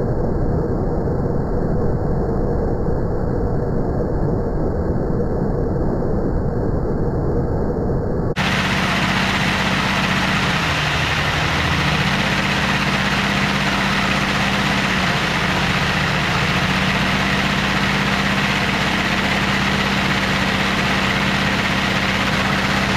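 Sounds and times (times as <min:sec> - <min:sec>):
vacuum cleaner running: 0:08.4 - 0:22.9.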